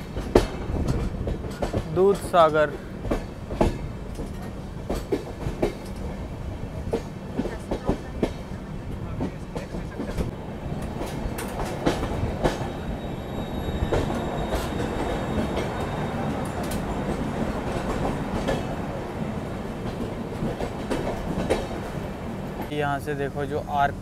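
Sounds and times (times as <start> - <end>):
sharp clicks from rail joints: 0.0 - 6.2, 9.2 - 12.7, 19.8 - 22.0
train wheels rumbling on track: 0.0 - 24.0.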